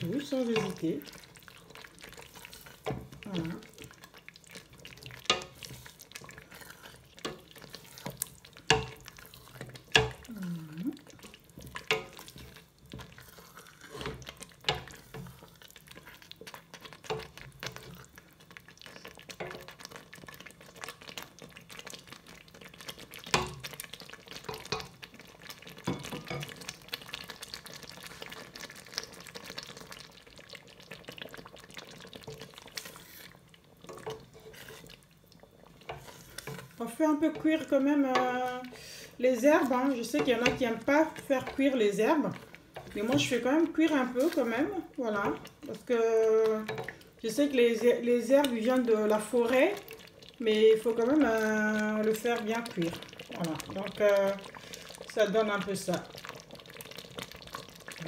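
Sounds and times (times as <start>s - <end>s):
sauce sizzling: 0.0s - 58.0s
spoon scraping metal pot: 32.3s - 34.9s, 35.8s - 38.9s.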